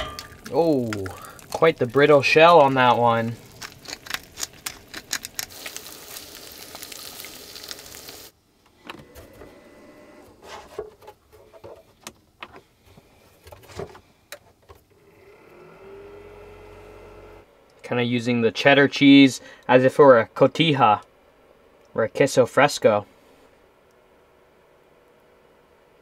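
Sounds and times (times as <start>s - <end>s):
cooking hiss: 0.0s - 8.4s
utensil clicks: 3.4s - 5.8s.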